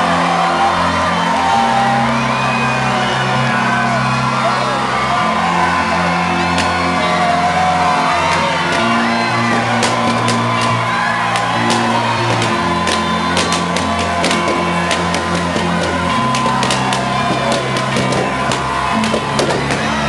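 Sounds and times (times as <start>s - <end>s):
crowd shouting and whooping: 0.0s - 20.0s
dance music with bass: 0.0s - 20.0s
balloons popping: 8.2s - 19.9s.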